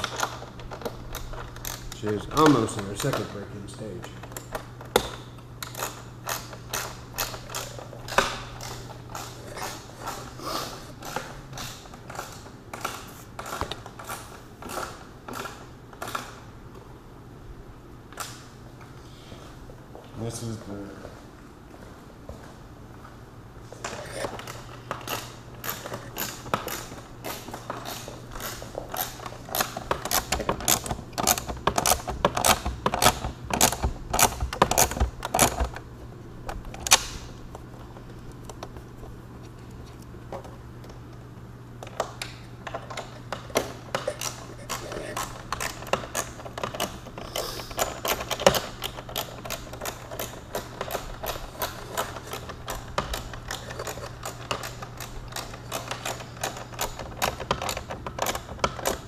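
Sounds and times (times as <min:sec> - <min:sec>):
tools clicking on plastic: 0:00.0 - 0:03.4, 0:04.0 - 0:10.3, 0:24.2 - 0:35.8, 0:41.8 - 0:59.0.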